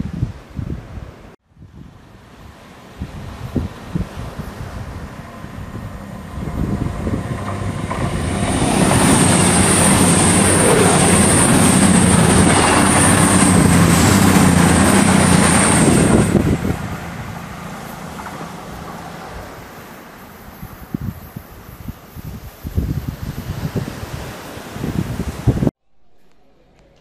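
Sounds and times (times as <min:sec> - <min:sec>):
diesel train engines humming: 0:02.2 - 0:20.9
train wheels whining on rails: 0:04.3 - 0:22.0.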